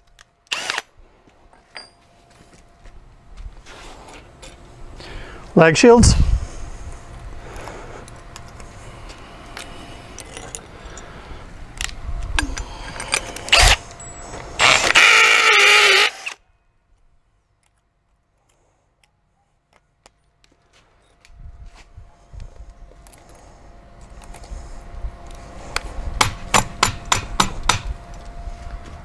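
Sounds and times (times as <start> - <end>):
cordless drill whining: 0.5 - 0.8, 12.6 - 16.4
tools rattling and clicking: 10.1 - 11.1.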